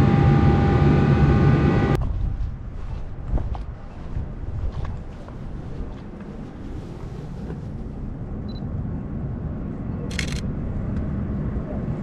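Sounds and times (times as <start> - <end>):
camera autofocus beep: 10.1 - 10.4
camera shutter click: 10.1 - 10.4.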